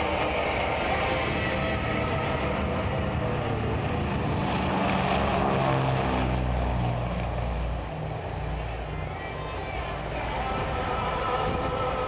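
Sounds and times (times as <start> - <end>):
propeller engines drone: 0.0 - 12.0.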